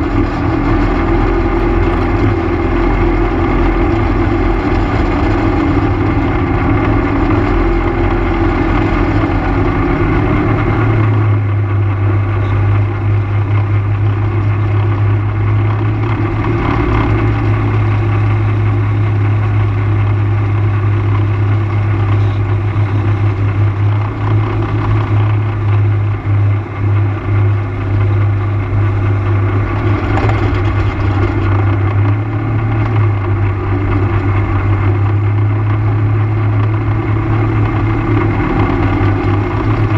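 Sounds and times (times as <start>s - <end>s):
quad engine running: 0.0s - 39.9s
tyres on gravel: 29.4s - 33.0s.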